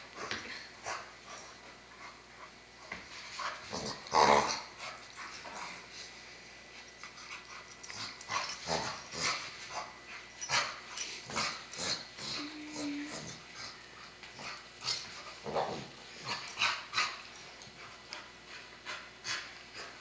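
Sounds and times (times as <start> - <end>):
dogs growling: 3.7 - 4.7, 7.8 - 13.8.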